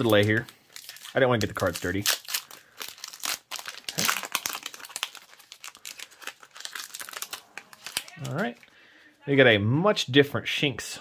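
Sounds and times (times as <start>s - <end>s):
foil wrapper crinkling and tearing: 0.0s - 8.7s.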